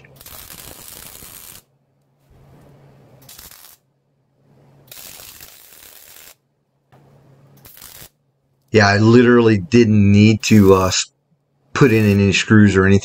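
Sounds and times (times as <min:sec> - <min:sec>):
welder crackling sizzle: 0:00.0 - 0:01.7, 0:03.2 - 0:03.8, 0:04.9 - 0:06.4, 0:07.6 - 0:08.2, 0:10.4 - 0:11.0, 0:11.8 - 0:12.5.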